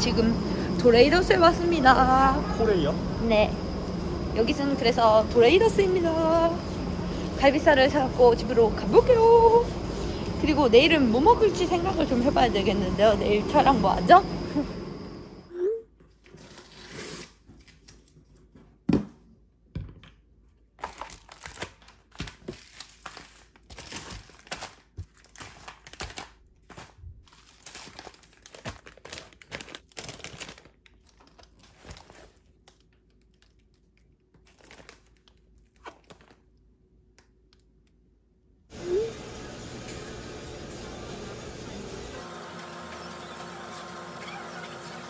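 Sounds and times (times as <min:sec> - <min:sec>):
crinkly packaging rustling: 0:20.7 - 0:36.7.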